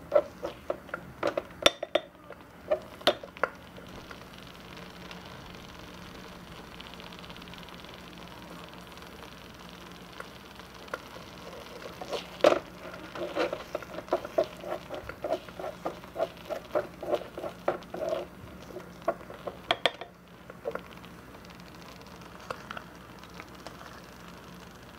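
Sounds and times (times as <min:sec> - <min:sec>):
wooden spoon scraping pan: 0:00.0 - 0:01.5, 0:11.5 - 0:20.0.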